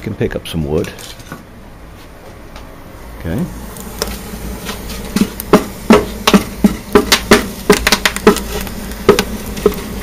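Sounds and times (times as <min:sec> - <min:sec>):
firewood knocking and clattering: 0:04.0 - 0:09.9.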